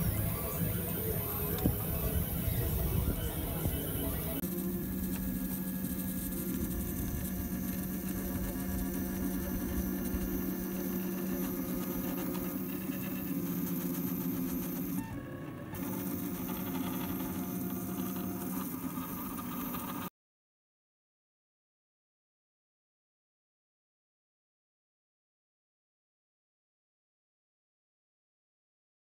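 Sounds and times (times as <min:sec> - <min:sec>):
printer motor humming: 0:00.0 - 0:20.1.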